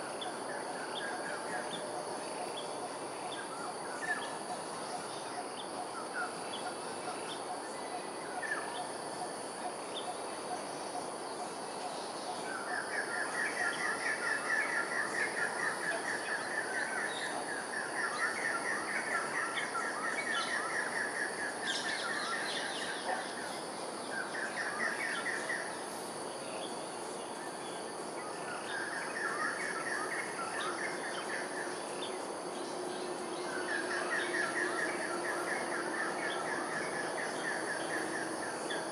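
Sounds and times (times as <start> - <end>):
high-pitched insect hum: 0.0 - 38.9.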